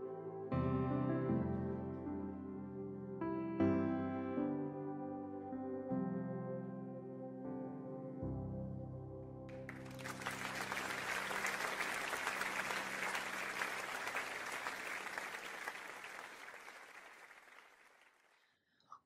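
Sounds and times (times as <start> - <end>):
audience applauding: 9.5 - 18.5.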